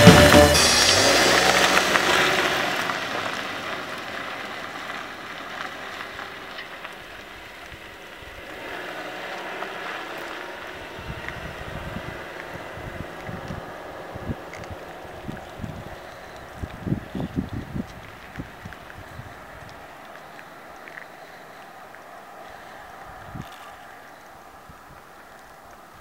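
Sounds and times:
music: 0.0 - 1.9
car driving off: 0.0 - 23.8
wind buffeting microphone: 10.6 - 21.0, 22.8 - 26.0.

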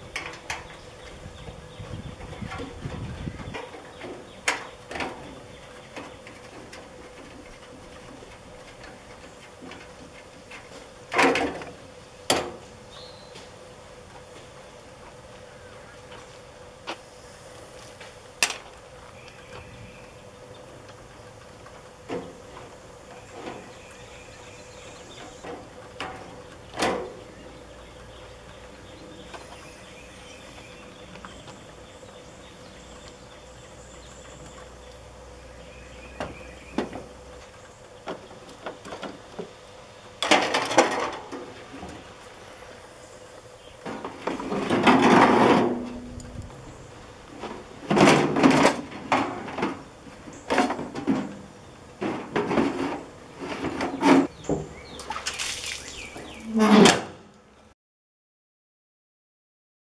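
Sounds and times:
metal scraping on truck bed: 43.8 - 54.5, 56.2 - 57.3.

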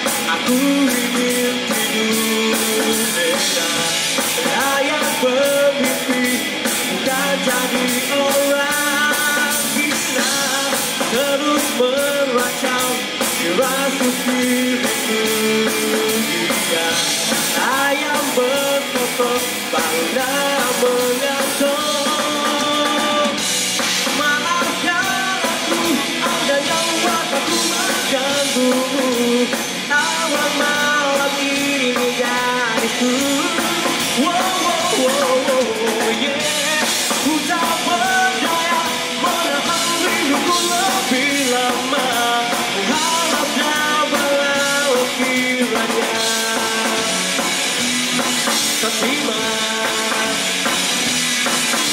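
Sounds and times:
male singer: 0.0 - 50.8
bass guitar: 0.0 - 51.9
drum kit: 0.0 - 51.9
electric guitar: 0.0 - 51.9.

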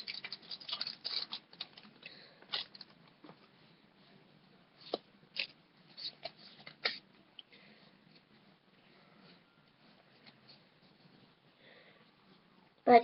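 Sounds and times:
card pack crinkling and clicking: 0.0 - 3.0
sharp plastic crackles: 0.0 - 3.4.

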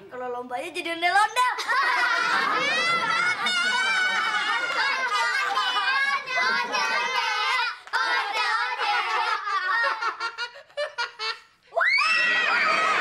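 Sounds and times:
children laughing: 1.5 - 13.0
loud rising shout: 11.8 - 13.0.

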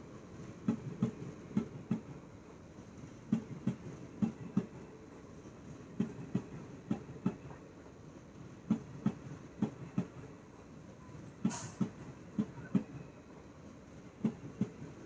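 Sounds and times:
train wheels clacking over rail joints: 0.4 - 2.2, 3.2 - 4.9, 5.9 - 7.6, 8.6 - 10.3, 11.4 - 13.0, 14.2 - 15.0.

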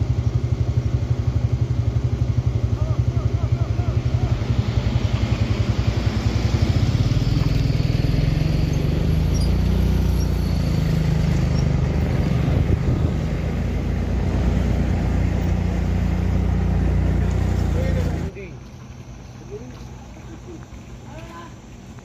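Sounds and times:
diesel truck engines in traffic: 0.0 - 22.0
car passing: 2.3 - 19.6.

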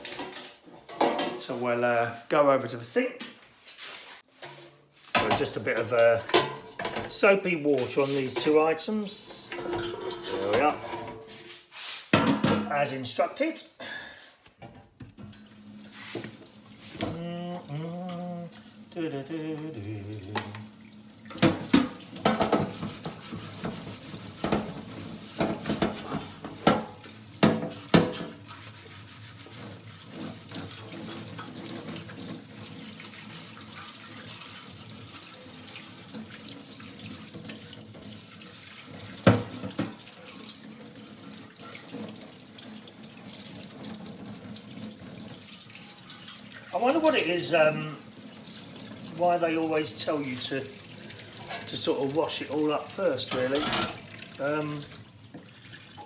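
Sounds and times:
sponge scrubbing baskets: 3.6 - 13.3, 15.7 - 20.6, 21.4 - 55.9.

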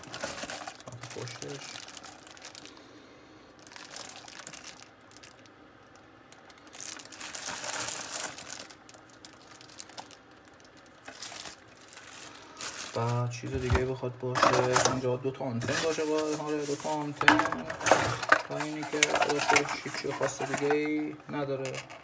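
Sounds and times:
plastic bag crinkling: 0.0 - 2.9, 3.6 - 22.0.

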